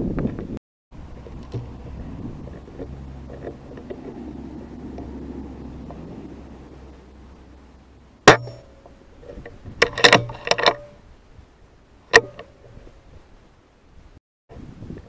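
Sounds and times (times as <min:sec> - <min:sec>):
metallic clacks of rifle lever: 0:09.4 - 0:10.8.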